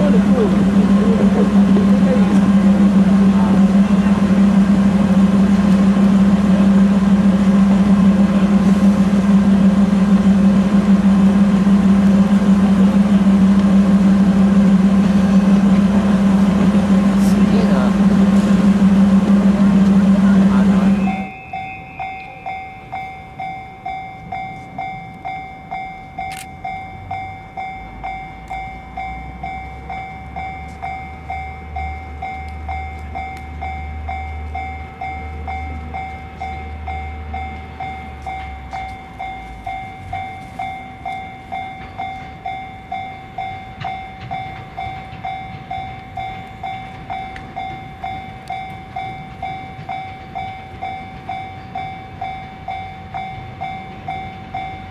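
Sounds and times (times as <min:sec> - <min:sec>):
level-crossing two-tone bell: 0:20.1 - 0:54.9.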